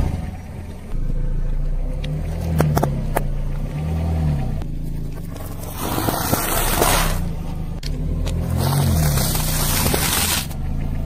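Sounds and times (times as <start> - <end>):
car engine running slowly: 0.0 - 11.0
tyre rolling over asphalt: 4.9 - 11.0
tyre crunching plastic bag: 8.6 - 10.6.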